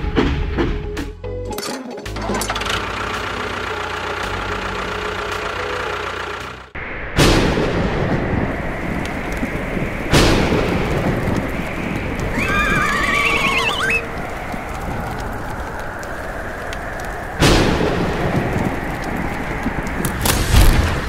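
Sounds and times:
steady rushing noise: 6.7s - 21.0s
loud booms: 6.8s - 12.3s, 17.4s - 19.2s, 19.8s - 21.0s
wavering warbling call: 12.3s - 14.1s.

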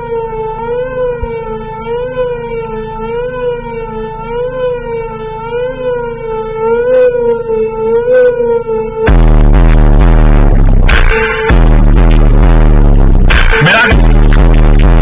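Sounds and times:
heavy bass beat: 0.0s - 2.6s, 8.3s - 15.0s
siren-like wailing tone: 0.0s - 15.0s.

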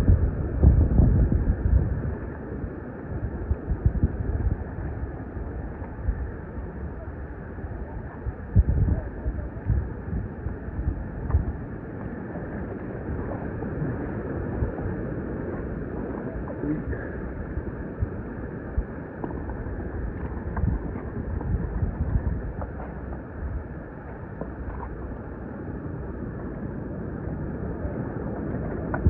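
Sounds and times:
wind buffeting microphone: 0.0s - 29.0s
surf rushing: 10.5s - 29.0s.

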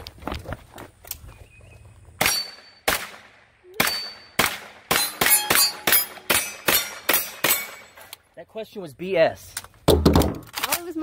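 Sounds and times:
rifle shots: 2.2s - 7.9s
steel plates ringing: 3.8s - 8.0s.

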